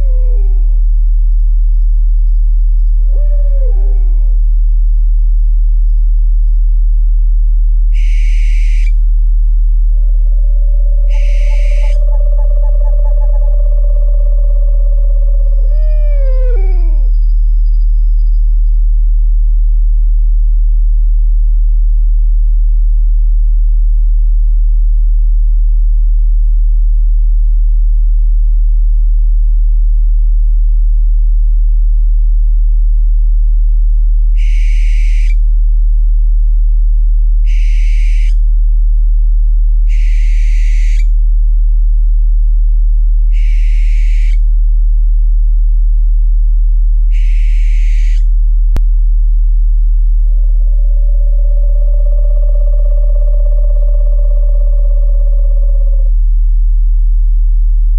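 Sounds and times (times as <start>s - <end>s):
owl screeching: 0.0s - 0.8s, 3.1s - 4.4s, 7.9s - 9.0s, 10.2s - 17.8s, 34.4s - 35.4s, 37.4s - 38.4s, 39.9s - 41.2s, 43.3s - 44.4s, 47.1s - 48.3s, 50.6s - 56.2s
deep humming tone: 0.0s - 37.7s, 38.3s - 57.9s.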